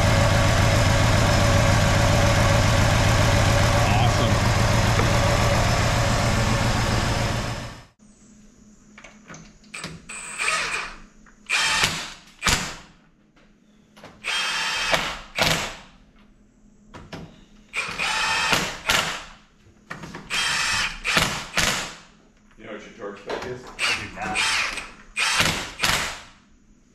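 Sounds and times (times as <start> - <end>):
car engine running: 0.0 - 8.0.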